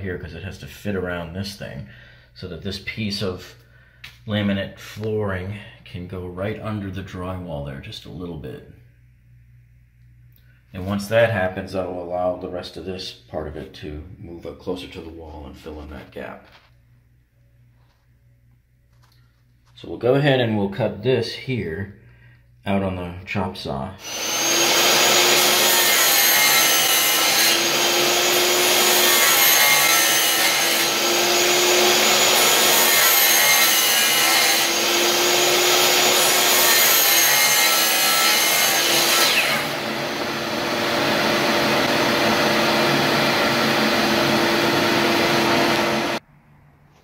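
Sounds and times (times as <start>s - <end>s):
chop saw cutting: 24.0s - 46.2s.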